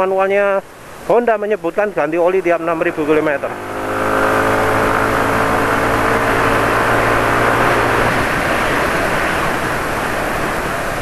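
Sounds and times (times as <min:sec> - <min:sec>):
road and tyre noise: 0:00.0 - 0:11.0
scooter engine running: 0:02.9 - 0:09.9
wind rushing: 0:03.1 - 0:11.0.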